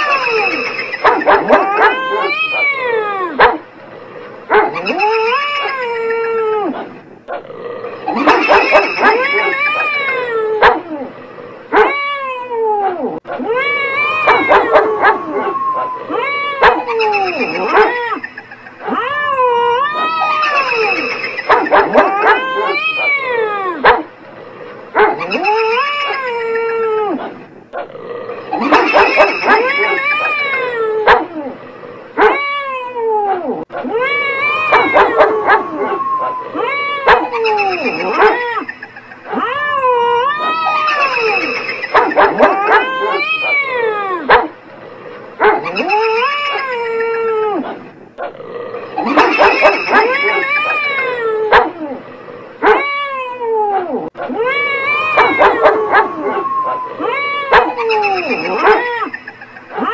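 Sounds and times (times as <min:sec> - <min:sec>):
cat yowling: 0:00.0 - 0:03.5, 0:04.5 - 0:06.9, 0:08.1 - 0:11.0, 0:11.7 - 0:24.0, 0:28.6 - 0:31.6, 0:32.2 - 0:44.5, 0:45.6 - 0:47.8, 0:49.0 - 0:52.0, 0:52.6 - 0:59.9
dog howling and yipping: 0:00.0 - 0:03.6, 0:04.5 - 0:07.0, 0:08.1 - 0:11.1, 0:11.7 - 0:24.0, 0:25.0 - 0:27.4, 0:28.5 - 0:31.6, 0:32.2 - 0:44.5, 0:45.4 - 0:47.8, 0:48.9 - 0:52.0, 0:52.6 - 0:59.9
dog barking: 0:01.0 - 0:02.0, 0:03.4 - 0:03.6, 0:08.2 - 0:09.9, 0:14.3 - 0:15.2, 0:16.6 - 0:18.0, 0:21.5 - 0:23.1, 0:23.8 - 0:24.1, 0:28.6 - 0:30.0, 0:31.1 - 0:31.3, 0:34.7 - 0:35.6, 0:37.0 - 0:38.4, 0:41.9 - 0:43.2, 0:44.3 - 0:44.5, 0:49.0 - 0:50.8, 0:51.5 - 0:51.8, 0:55.2 - 0:56.2, 0:57.5 - 0:58.9
long drawn-out wail: 0:32.2 - 0:38.5, 0:52.6 - 0:59.0.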